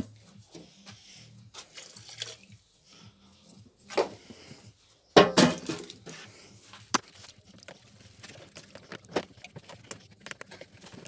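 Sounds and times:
ruler stirring paint in plastic cup: 0:07.0 - 0:11.0.

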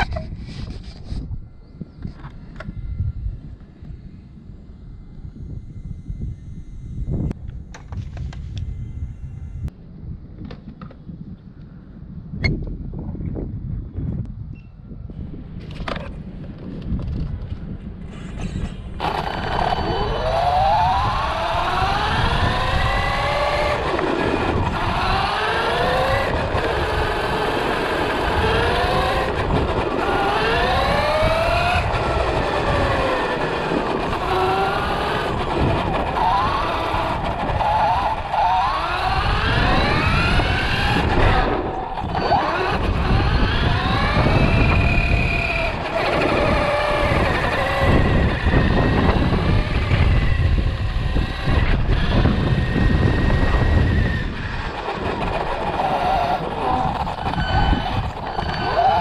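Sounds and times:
toy car motor whining: 0:18.1 - 0:59.0.

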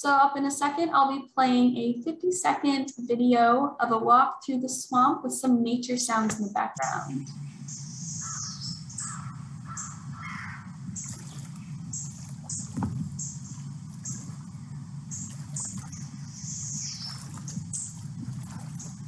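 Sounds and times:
steady low rumble: 0:06.8 - 0:19.0
harsh caw-like bird calls: 0:07.7 - 0:14.5.

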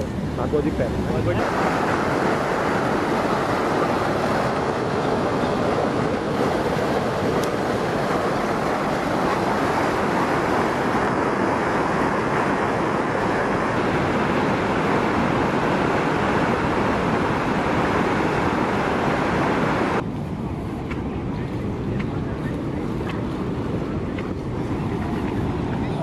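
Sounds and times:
river rushing through rapids: 0:00.0 - 0:20.0.

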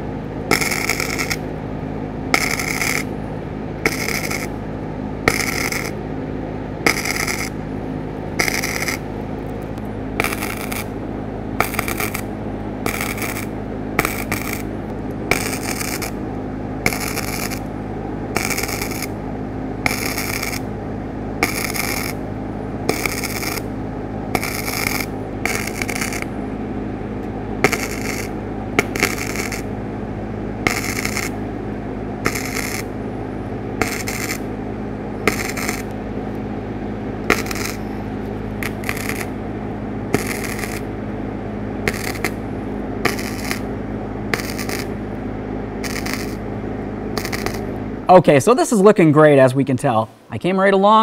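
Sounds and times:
welder spot welds popping: 0:00.0 - 0:01.6, 0:02.3 - 0:06.1, 0:06.8 - 0:26.4, 0:27.1 - 0:29.9, 0:30.5 - 0:47.9.

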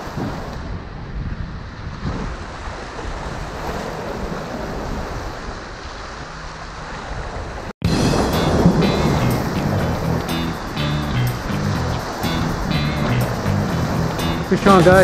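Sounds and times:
wind buffeting microphone: 0:00.0 - 0:06.0, 0:06.9 - 0:15.0
ocean surf on rocks: 0:00.0 - 0:15.0
music: 0:07.8 - 0:15.0.

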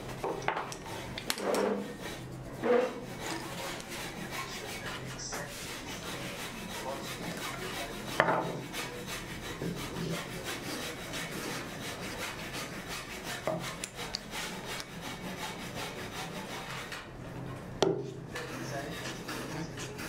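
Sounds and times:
tool rasping on wood: 0:00.2 - 0:17.1, 0:18.3 - 0:20.0
wood knocking on wood: 0:08.2 - 0:08.6.

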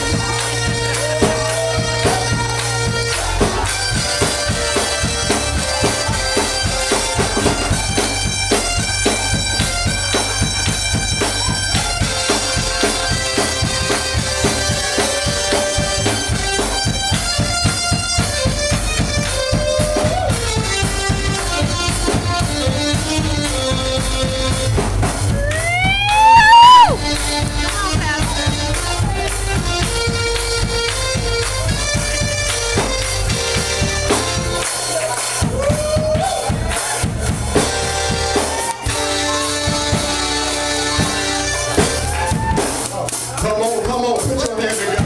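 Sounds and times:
drum kit steady beat: 0:00.0 - 0:45.0
live gospel music: 0:00.0 - 0:45.0
man shouting into microphone: 0:25.3 - 0:27.1.

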